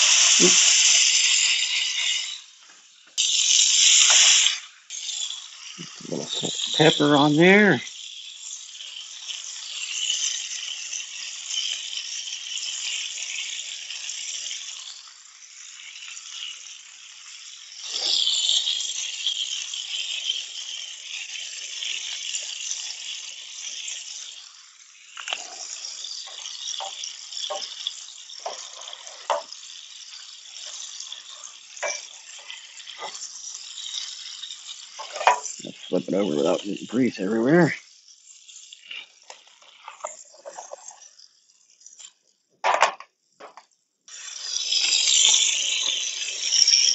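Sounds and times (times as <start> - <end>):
spatula scraping a pan: 0.0 - 2.5, 25.3 - 41.2
patties sizzling in a frying pan: 0.0 - 46.9.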